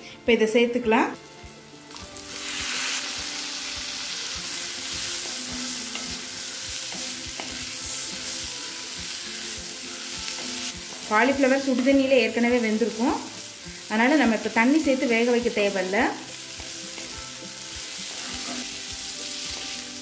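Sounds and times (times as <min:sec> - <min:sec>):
vegetables sizzling in hot oil: 0:01.0 - 0:20.0.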